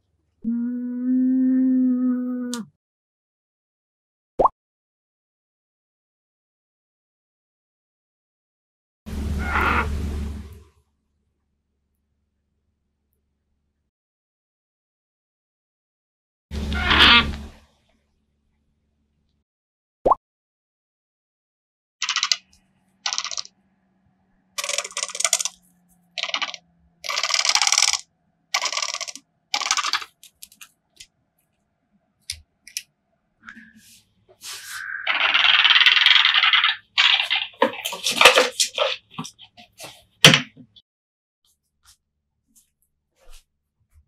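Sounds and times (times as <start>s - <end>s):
owl rasping rolling call: 9.3s - 10.0s, 33.4s - 37.4s.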